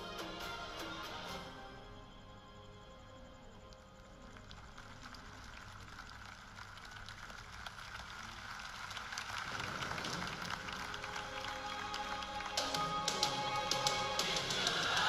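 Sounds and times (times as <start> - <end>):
crowd applauding: 4.2 - 15.0.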